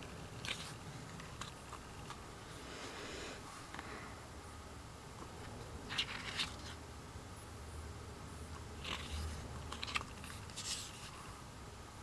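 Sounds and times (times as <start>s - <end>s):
paper pages turning: 0.0s - 2.2s, 5.8s - 6.8s, 8.8s - 11.2s.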